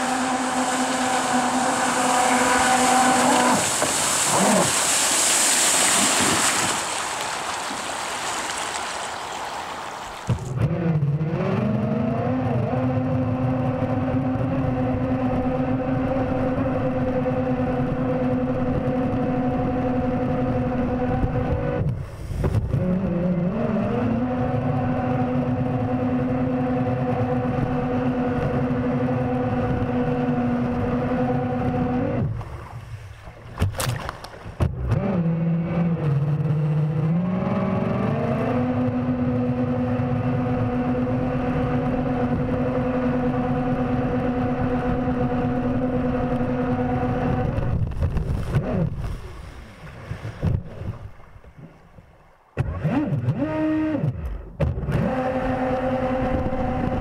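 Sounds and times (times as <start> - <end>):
electric jet drive whine: 0.0 - 4.2
rushing water: 0.0 - 10.6, 32.2 - 34.7.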